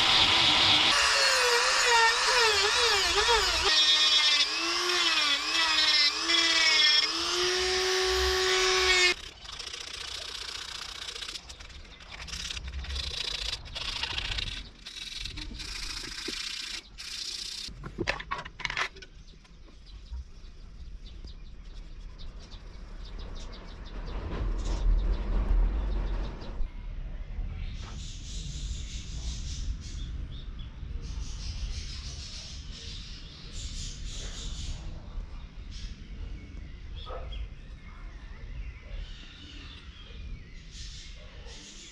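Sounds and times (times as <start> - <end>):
rotary tool whining into wood: 0.0 - 11.6, 12.3 - 17.7
scratchy rasping: 0.1 - 17.7.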